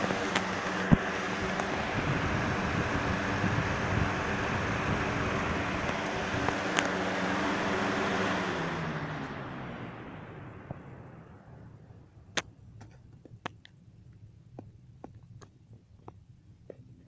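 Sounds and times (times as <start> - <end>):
rush of air: 0.0 - 10.6
box fan humming: 0.0 - 17.0.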